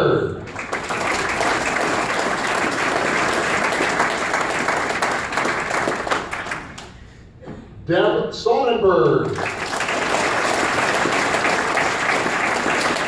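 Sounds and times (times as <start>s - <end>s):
audience applauding: 0.4s - 6.9s, 9.3s - 13.0s.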